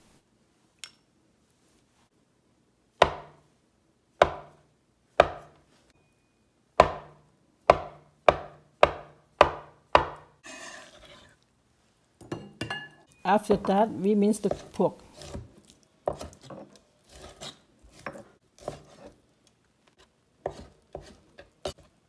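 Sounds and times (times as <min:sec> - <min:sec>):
cleaver chopping on cutting board: 0:03.0 - 0:03.4, 0:04.2 - 0:04.6, 0:05.2 - 0:05.6, 0:06.8 - 0:10.3, 0:14.5 - 0:15.5, 0:16.1 - 0:19.1, 0:20.4 - 0:21.8.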